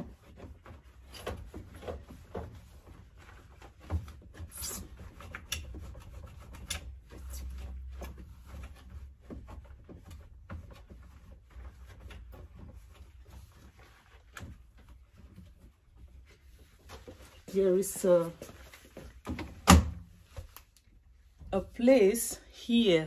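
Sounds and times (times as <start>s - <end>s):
gloved hands scrubbing plastic: 0.0s - 19.3s
small clicks knocks and scrapes: 3.8s - 13.2s.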